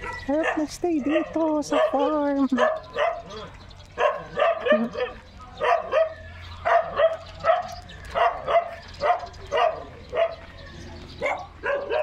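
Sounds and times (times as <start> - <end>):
dog barking: 0.0 - 10.6, 11.2 - 12.0.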